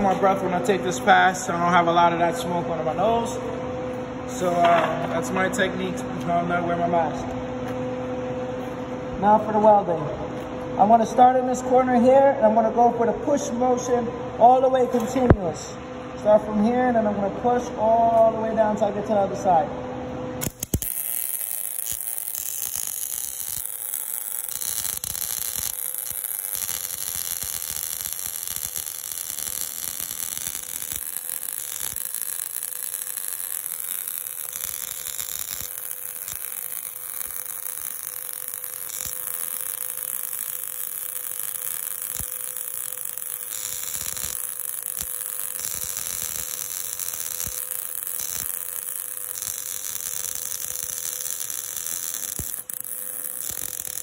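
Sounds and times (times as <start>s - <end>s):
welding arc sizzling: 0.0s - 3.4s, 4.0s - 6.0s, 20.4s - 54.0s.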